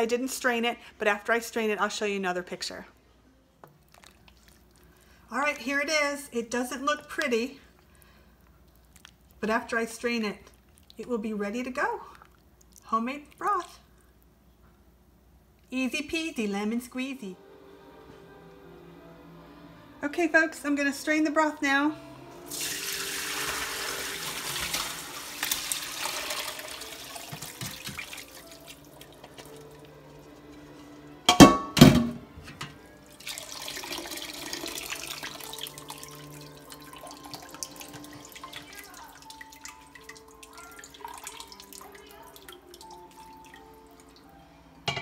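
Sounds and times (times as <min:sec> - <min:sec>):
liquid pouring and splashing: 0:03.8 - 0:05.2, 0:22.5 - 0:30.3, 0:33.1 - 0:44.3.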